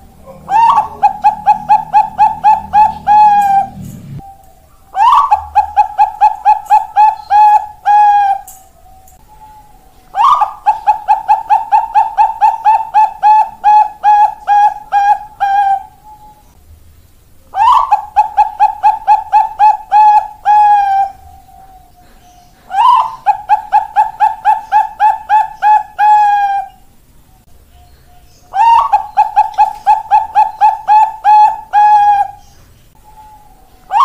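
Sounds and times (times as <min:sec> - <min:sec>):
dove cooing: 0:00.0 - 0:16.6, 0:17.5 - 0:26.9, 0:28.5 - 0:34.0.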